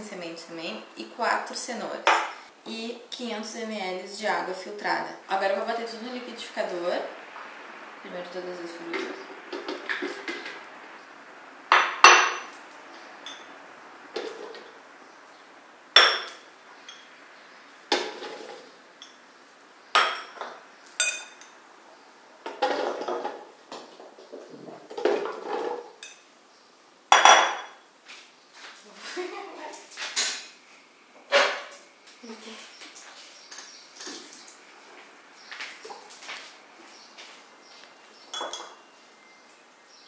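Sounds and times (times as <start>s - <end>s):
glass bowls knocking on stone: 11.7s - 12.5s, 16.0s - 17.0s, 27.1s - 27.8s, 38.3s - 38.8s.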